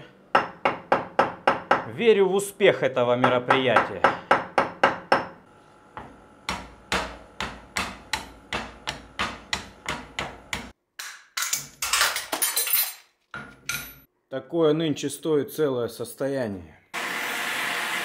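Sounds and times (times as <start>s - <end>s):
hammer tapping metal: 0.3s - 1.9s, 3.2s - 5.4s, 6.0s - 12.0s.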